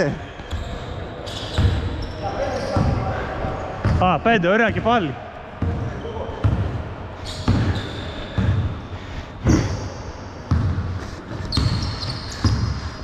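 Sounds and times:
short high squeaks: 0.6 - 2.8, 11.5 - 12.5
basketball bouncing on court: 1.5 - 3.0, 3.8 - 4.1, 5.6 - 8.7, 10.4 - 13.0.

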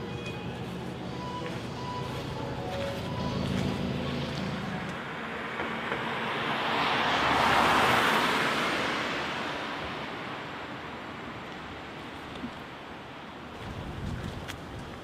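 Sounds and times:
car driving past: 2.9 - 9.8.

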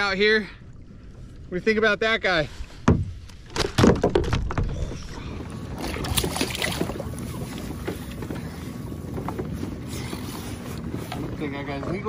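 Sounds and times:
handling knocks on boat: 2.8 - 4.7.

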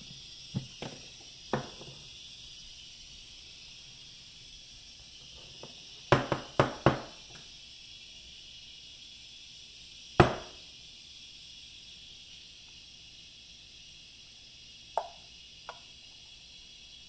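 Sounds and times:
knocks on kitchen countertop: 0.6 - 1.9, 6.1 - 7.2, 10.2 - 10.6, 15.0 - 15.8.

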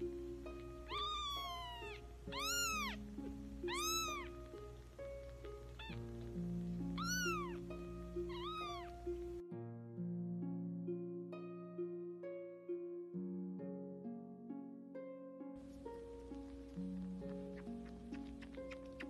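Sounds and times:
background music sustained notes: 0.0 - 19.0
kittens mewing: 0.8 - 6.4, 7.0 - 9.0.

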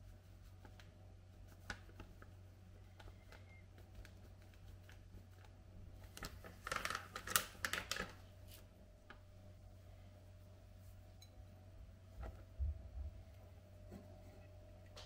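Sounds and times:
flour packet crinkling: 3.0 - 9.2.

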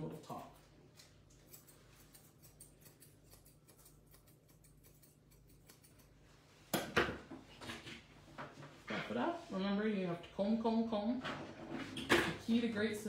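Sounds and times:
shears snipping hair: 0.0 - 6.8.

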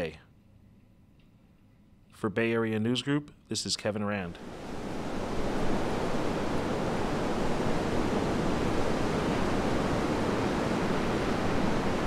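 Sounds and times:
surf breaking on beach: 4.4 - 12.0.

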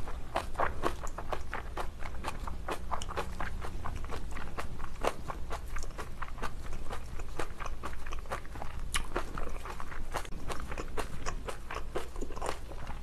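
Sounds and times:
crisp crunching of chewing: 0.0 - 13.0.

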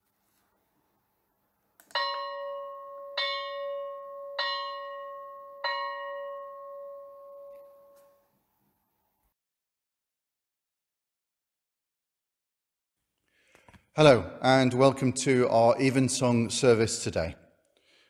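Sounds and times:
bell strokes ringing: 2.0 - 8.2.

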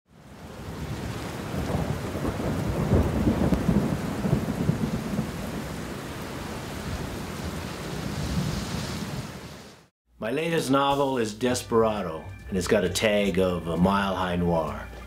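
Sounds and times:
steady rain: 0.1 - 9.9
thunder rumbling: 0.4 - 9.6.

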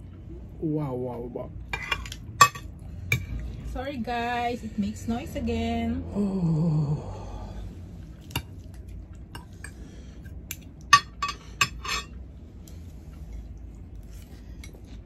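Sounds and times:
cutlery clinking on ceramic bowls: 1.7 - 3.3, 10.5 - 12.2.

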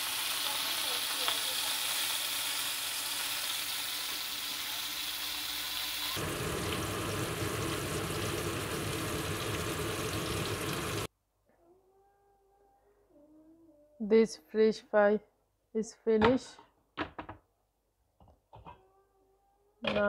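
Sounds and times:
fish sizzling in oil: 0.0 - 11.1.

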